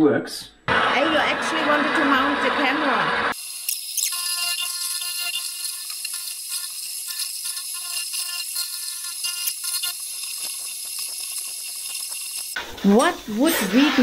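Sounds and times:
milling machine whine: 0:00.7 - 0:14.0.

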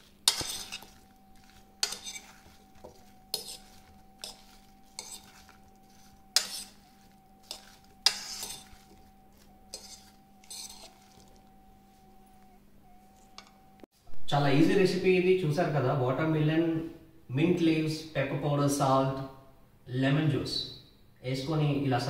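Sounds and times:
fork scraping and clinking bowl: 0:00.0 - 0:12.1
faint steady hum: 0:00.0 - 0:22.0.

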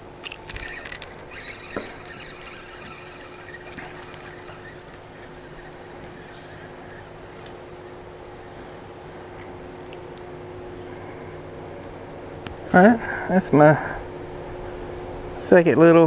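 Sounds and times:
fishing reel clicking and whirring: 0:00.2 - 0:09.0.

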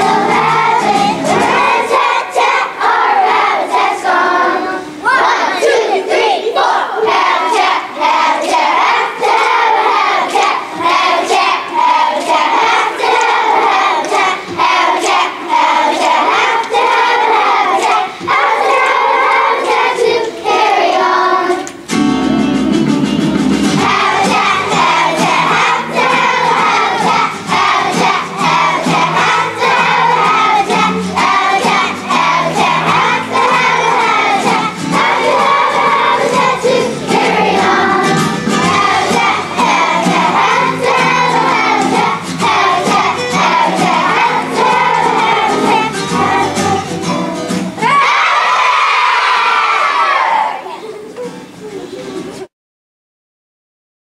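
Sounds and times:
instrumental accompaniment with bass: 0:00.0 - 0:02.0, 0:21.8 - 0:47.8
children's choir singing: 0:00.0 - 0:52.5.

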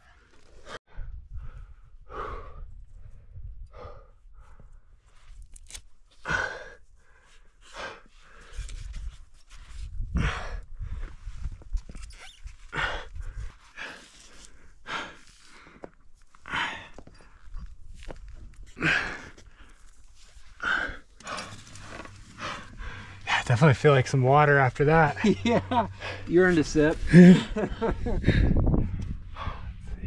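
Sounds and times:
person breathing hard: 0:00.6 - 0:04.9, 0:20.5 - 0:23.4, 0:27.0 - 0:30.0
low rumble: 0:17.6 - 0:30.0.

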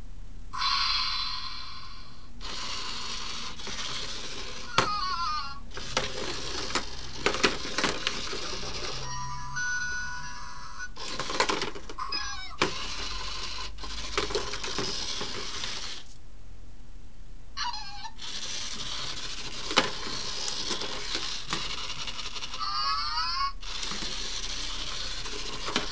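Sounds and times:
toy motor whirring: 0:00.6 - 0:16.1, 0:17.6 - 0:25.9
chirping squeaks: 0:12.0 - 0:12.6.

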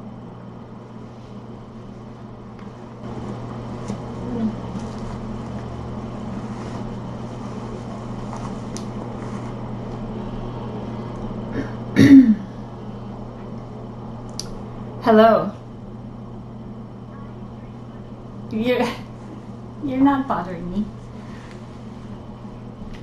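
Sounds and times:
low room hum: 0:00.0 - 0:23.0
person coughing: 0:11.5 - 0:12.5.

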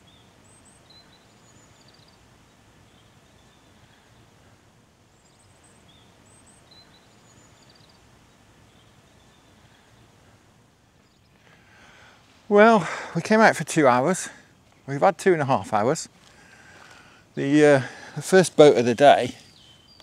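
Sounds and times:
bird chirps: 0:00.0 - 0:04.2, 0:05.1 - 0:10.1, 0:19.0 - 0:20.0
low outdoor hiss: 0:00.0 - 0:20.0.

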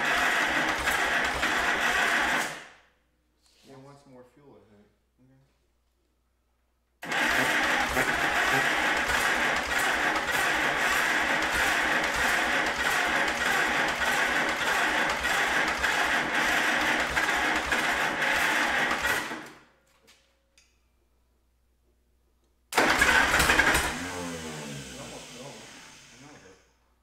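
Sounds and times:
electric starter cranking engine: 0:00.0 - 0:02.8, 0:07.0 - 0:19.7, 0:22.7 - 0:26.6.

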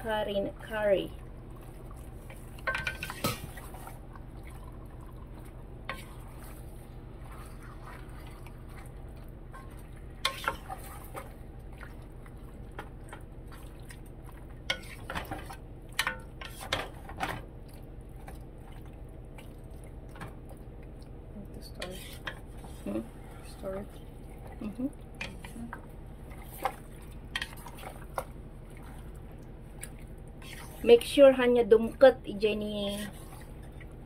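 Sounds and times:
steady low hum: 0:00.0 - 0:34.0
wooden spoon scraping a pot: 0:09.6 - 0:11.3, 0:14.6 - 0:17.1, 0:21.6 - 0:24.6, 0:30.4 - 0:31.3, 0:32.6 - 0:33.8.

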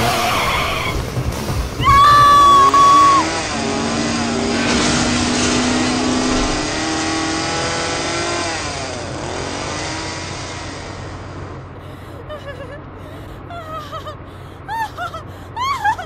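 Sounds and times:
car engine revving: 0:00.0 - 0:11.8
rushing noise: 0:00.0 - 0:12.0.

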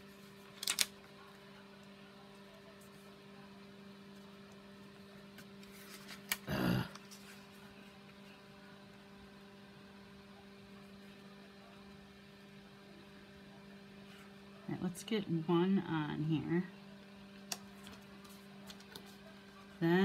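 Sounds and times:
faint electrical hum: 0:00.0 - 0:20.0
cardstock handling noise: 0:00.5 - 0:00.9.

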